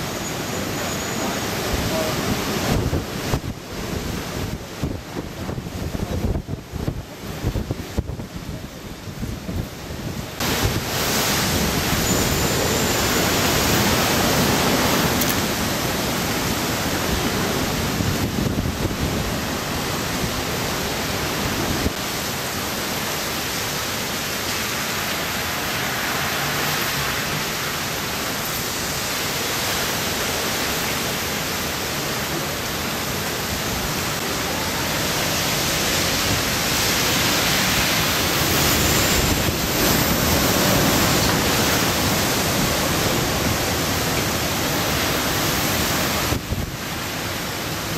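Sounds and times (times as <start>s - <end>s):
heavy driving rain: 0.0s - 47.9s
wind buffeting microphone: 2.4s - 12.4s, 13.0s - 22.0s.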